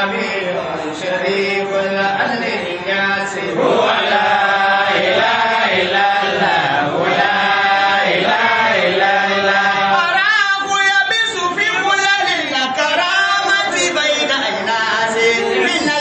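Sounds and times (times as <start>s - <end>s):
men chanting: 0.0s - 16.0s.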